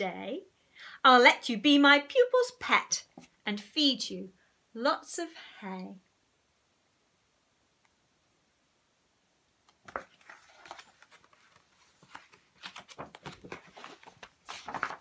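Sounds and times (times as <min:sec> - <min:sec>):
book pages turning: 0:09.7 - 0:15.0.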